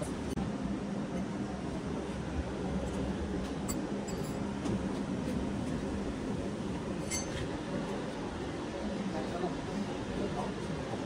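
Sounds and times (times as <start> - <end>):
steady low hum: 0.0 - 11.0
faint light clinks: 3.6 - 4.6, 7.0 - 7.5.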